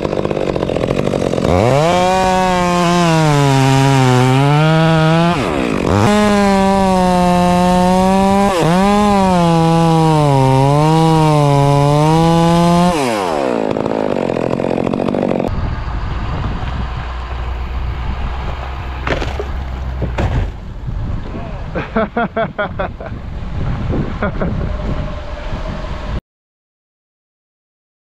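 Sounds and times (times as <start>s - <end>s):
chainsaw cutting wood: 0.0s - 15.6s, 16.4s - 20.6s.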